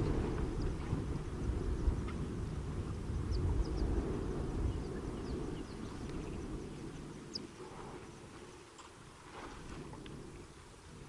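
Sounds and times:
low rumbling noise: 0.0 - 8.4.

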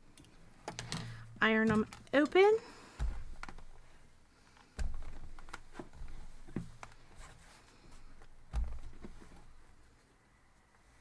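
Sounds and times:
iron thumping on pressing mat: 2.9 - 4.0, 4.7 - 7.0, 8.4 - 9.6.

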